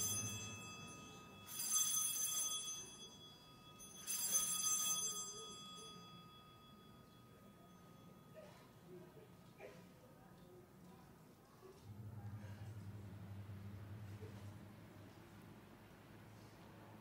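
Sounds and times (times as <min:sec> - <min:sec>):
altar bell ringing: 0:00.0 - 0:08.5.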